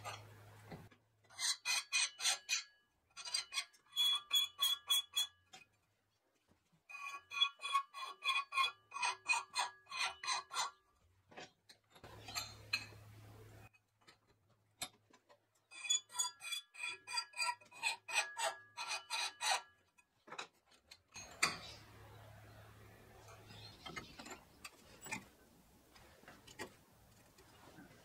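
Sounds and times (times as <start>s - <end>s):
steel being filed by hand: 1.3s - 5.3s, 6.9s - 10.8s, 15.7s - 19.8s
low hum with hiss: 12.1s - 13.7s.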